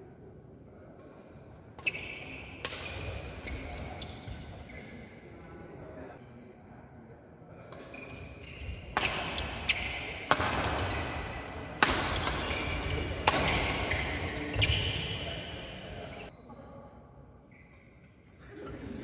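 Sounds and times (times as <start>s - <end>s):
rackets hitting shuttlecock with echo: 1.0s - 4.5s, 7.7s - 16.3s.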